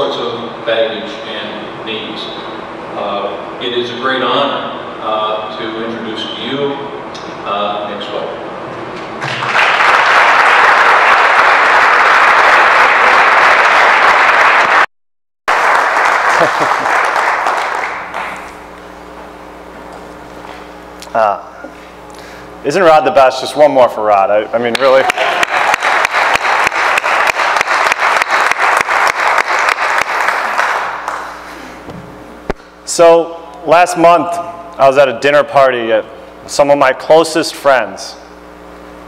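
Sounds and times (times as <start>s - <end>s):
audience applauding: 9.2s - 14.9s, 15.5s - 18.6s, 24.7s - 31.4s
close hand claps: 9.2s - 14.9s, 15.5s - 18.5s, 24.7s - 31.3s.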